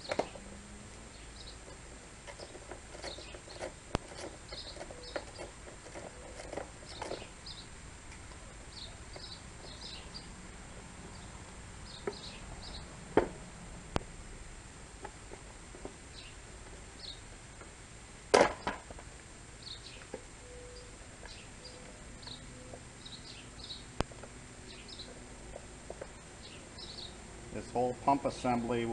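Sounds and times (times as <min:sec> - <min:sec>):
small birds chirping: 0:00.0 - 0:07.8, 0:08.4 - 0:10.4, 0:11.0 - 0:13.0, 0:16.1 - 0:17.3, 0:19.5 - 0:28.6.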